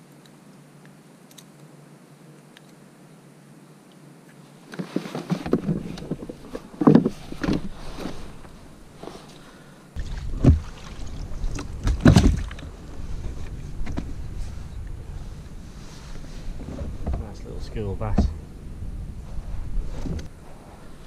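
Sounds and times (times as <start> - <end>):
handling knocks and rustles: 4.7 - 9.4, 10.2 - 14.6
low steady rumble: 5.6 - 21.0
loud knocks on plastic kayak: 11.8 - 12.5.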